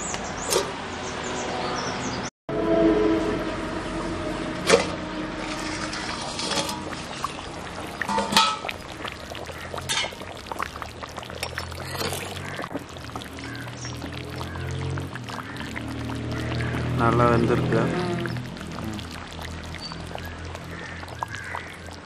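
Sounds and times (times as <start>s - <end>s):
curry bubbling in a pot: 5.4s - 22.0s
metal lid clink: 8.1s - 8.7s.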